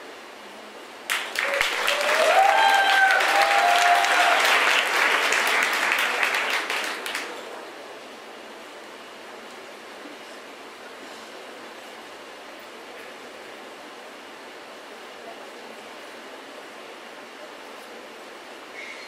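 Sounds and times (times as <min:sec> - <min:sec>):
audience applauding: 0:01.1 - 0:07.6
person cheering: 0:01.4 - 0:04.8.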